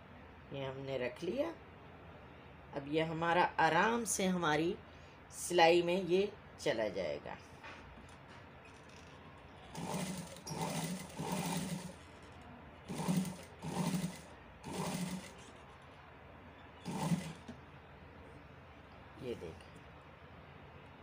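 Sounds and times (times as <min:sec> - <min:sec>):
sewing machine stitching: 0:09.6 - 0:15.6, 0:16.8 - 0:17.5.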